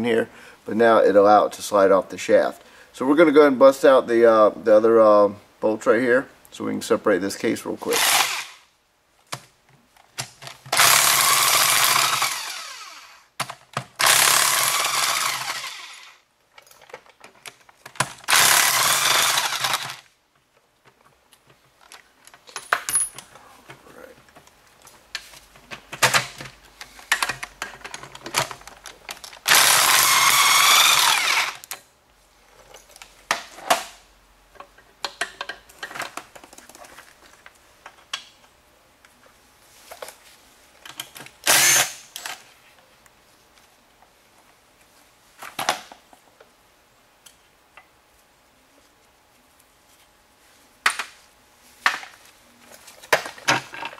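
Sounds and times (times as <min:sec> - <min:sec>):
power drill spinning bolts: 0:07.9 - 0:08.6, 0:10.7 - 0:13.2, 0:13.9 - 0:16.1, 0:18.2 - 0:20.1, 0:29.4 - 0:31.8, 0:41.4 - 0:42.4.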